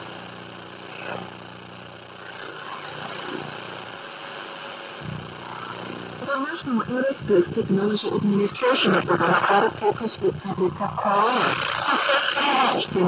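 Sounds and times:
radio static hiss: 0.0 - 13.0
low hum: 4.9 - 13.0.

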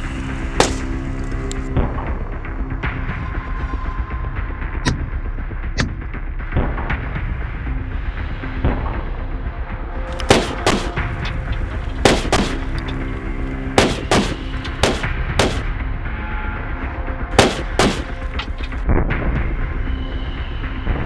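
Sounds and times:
music: 0.0 - 21.0
gunshots: 0.6 - 1.0, 10.2 - 11.2, 11.9 - 13.0, 13.8 - 15.8, 17.4 - 18.8.

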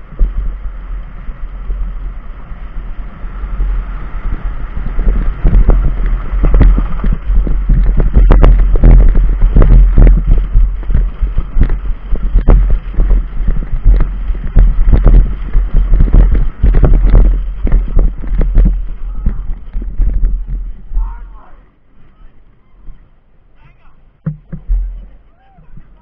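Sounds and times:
cart wheels rumbling: 0.0 - 26.0
wind buffeting microphone: 0.0 - 26.0
cart knocks and rattles: 4.3 - 20.9, 24.2 - 26.0.

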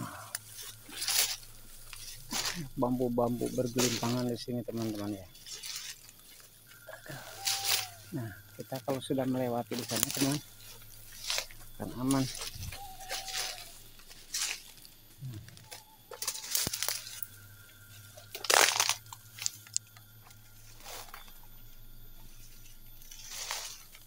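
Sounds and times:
footsteps crunching through dry leaves: 0.0 - 24.0.

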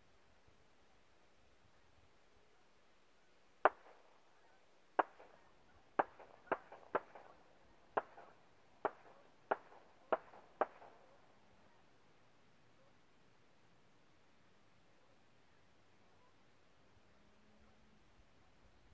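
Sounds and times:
distant rifle shots echoing: 3.6 - 4.2, 5.0 - 11.3.

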